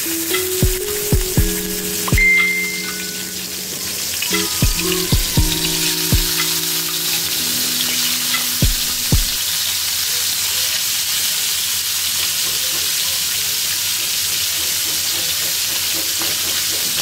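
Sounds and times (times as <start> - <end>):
fish sizzling in hot oil: 9.4 - 17.0.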